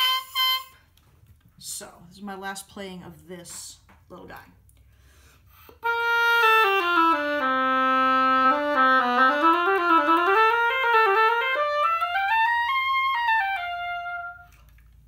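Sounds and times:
oboe playing: 0.0 - 0.9, 5.7 - 14.7.

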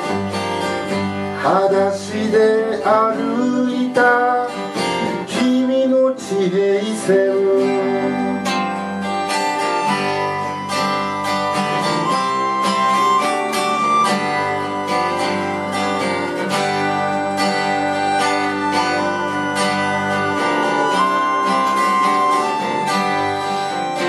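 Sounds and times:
acoustic guitar strumming: 0.0 - 24.0
melodica holding long notes: 7.6 - 24.0.

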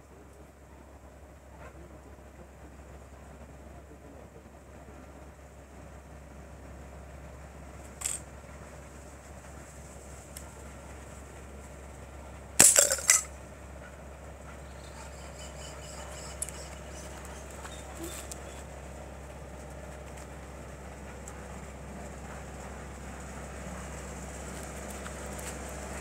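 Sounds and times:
glass bottle shattering: 12.6 - 13.3
glass shards clinking: 12.6 - 13.3.

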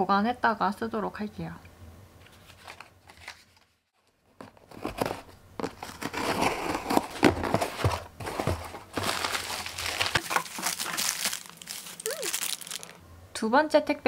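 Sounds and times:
cardboard box being opened: 4.4 - 12.9.

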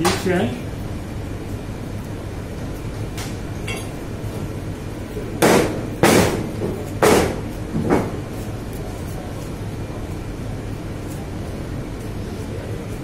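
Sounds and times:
heavy knocks on hard surface: 5.4 - 8.1.

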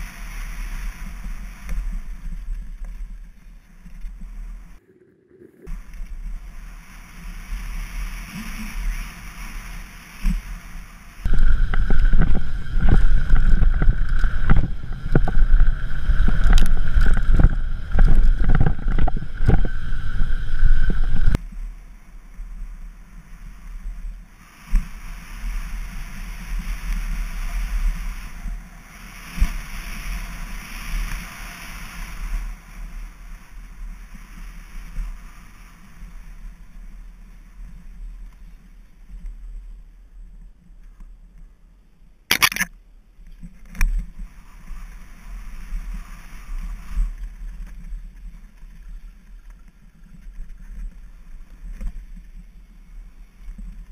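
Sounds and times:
bike tyres rolling on dirt: 0.0 - 4.9, 5.5 - 40.8, 43.4 - 53.9
wind rushing over microphone: 4.1 - 21.4
steady high whine: 11.3 - 21.4.

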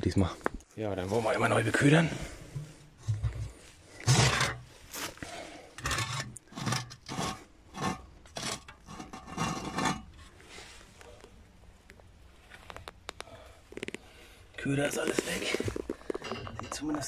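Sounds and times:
steel plate scraping on concrete: 2.5 - 4.7, 5.8 - 10.4.

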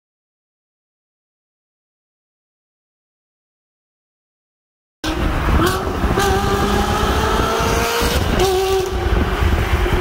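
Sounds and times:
sports car engine accelerating: 5.0 - 10.0.

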